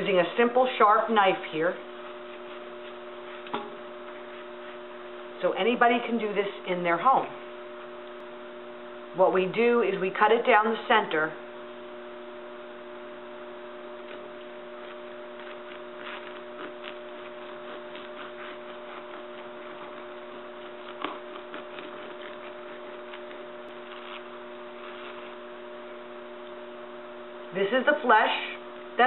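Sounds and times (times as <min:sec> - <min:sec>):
electrical hum: 0:00.0 - 0:29.0.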